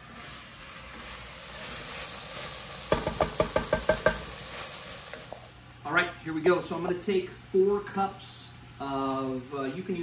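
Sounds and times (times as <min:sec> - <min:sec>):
mushrooms sizzling in a pot: 0:00.0 - 0:10.0
wooden spoon knocking a pot: 0:02.9 - 0:04.3.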